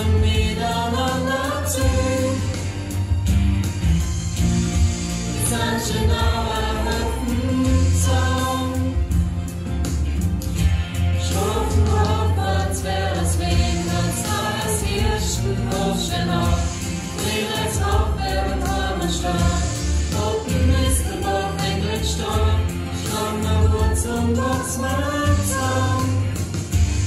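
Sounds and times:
mixed choir singing: 0:00.0 - 0:02.9, 0:05.3 - 0:09.2, 0:11.2 - 0:27.0
deep bass line: 0:01.8 - 0:17.1.

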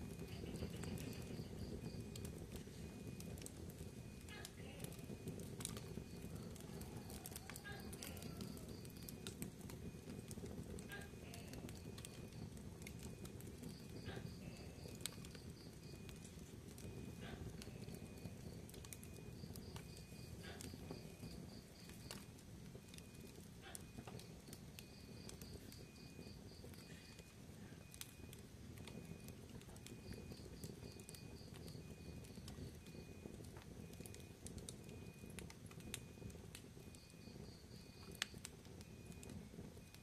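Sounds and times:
fire crackling and popping: 0:00.0 - 0:40.0
fire rumbling: 0:00.0 - 0:40.0
faint high chirps: 0:10.9 - 0:33.1.

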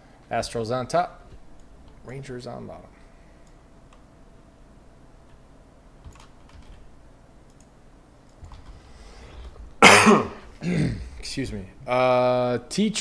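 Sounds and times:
keyboard and mouse clicks: 0:06.0 - 0:06.8.

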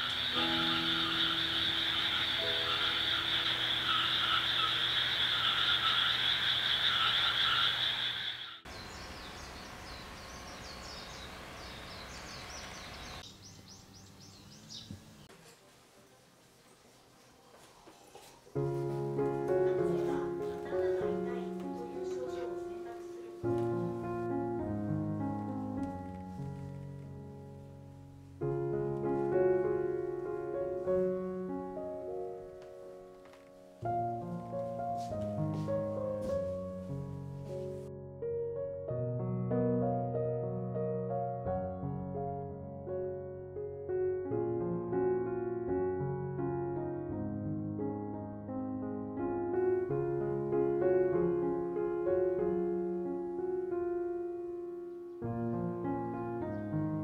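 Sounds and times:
slow piano chords: 0:00.0 - 0:07.6, 0:18.2 - 0:57.0
small bird chirping: 0:00.0 - 0:15.3
outdoor background noise: 0:00.0 - 0:24.2.

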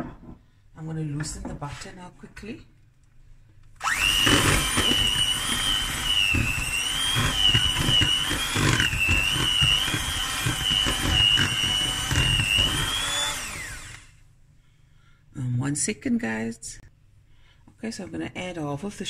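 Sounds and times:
hand mixer motor whining: 0:03.8 - 0:14.1.

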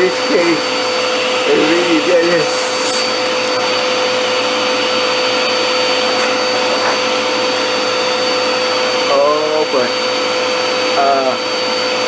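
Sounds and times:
handheld vacuum cleaner running: 0:00.0 - 0:12.0.

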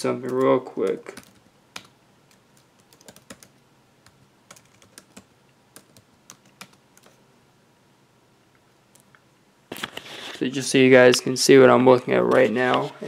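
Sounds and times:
typing on a computer keyboard: 0:00.2 - 0:03.5, 0:04.5 - 0:07.2.

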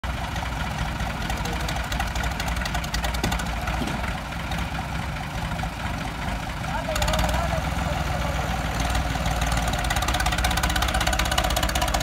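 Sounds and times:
diesel tractor engines clattering: 0:00.0 - 0:12.0.

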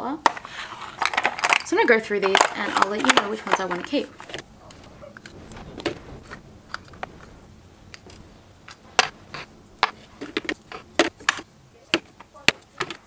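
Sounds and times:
plastic pots clicking and tapping: 0:00.2 - 0:04.4, 0:10.2 - 0:13.0.

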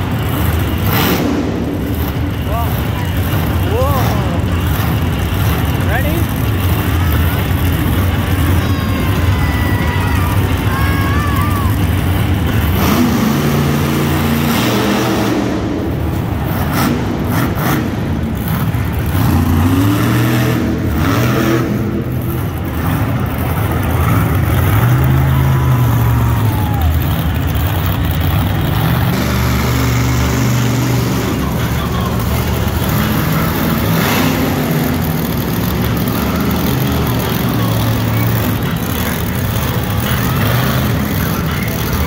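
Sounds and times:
monster truck engines revving: 0:00.0 - 0:42.0.

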